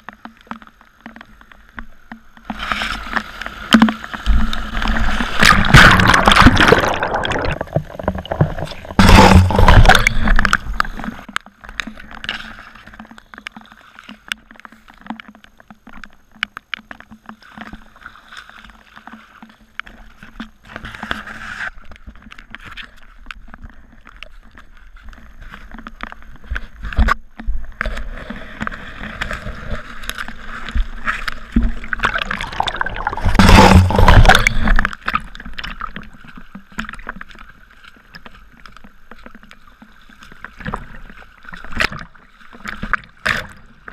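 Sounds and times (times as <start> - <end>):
water splashing: 0.0 - 14.9, 27.8 - 43.9
muddy water flowing and sloshing: 0.0 - 43.9
small scattered ticks: 10.0 - 28.0.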